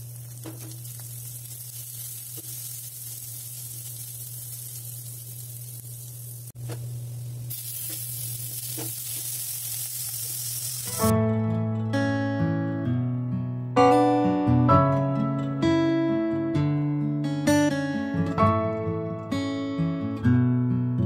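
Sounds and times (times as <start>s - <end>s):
food sizzling in hot oil: 0.0s - 11.1s
acoustic guitar music: 10.9s - 21.0s.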